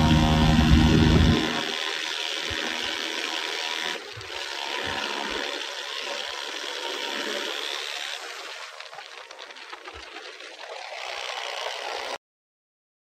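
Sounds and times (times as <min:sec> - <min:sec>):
wind buffeting microphone: 0:00.0 - 0:01.6.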